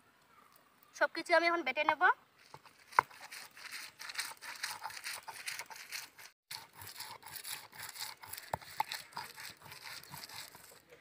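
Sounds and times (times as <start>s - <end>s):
stone grinding gritty scraping: 2.4s - 11.0s.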